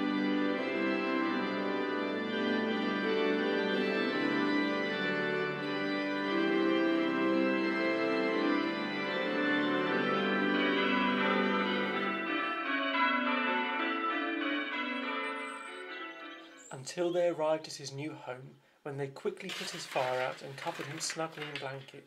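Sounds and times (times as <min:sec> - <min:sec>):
organ playing slow chords: 0:00.0 - 0:16.7.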